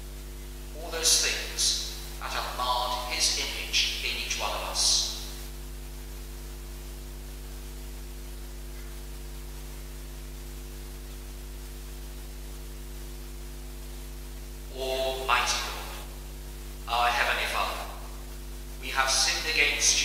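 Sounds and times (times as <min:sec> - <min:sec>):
constant hiss: 0:00.0 - 0:20.0
electrical hum with buzzing: 0:00.0 - 0:20.0.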